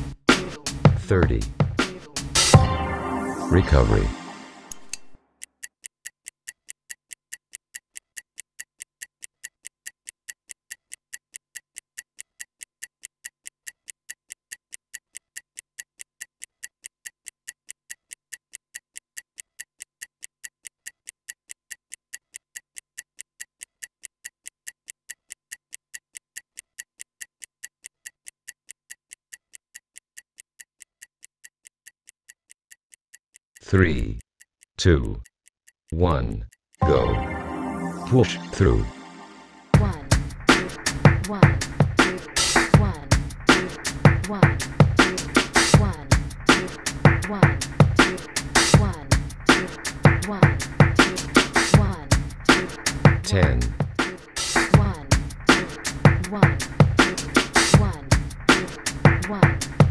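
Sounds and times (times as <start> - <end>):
stopwatch ticking: 4.9 - 37.1, 39.8 - 59.9.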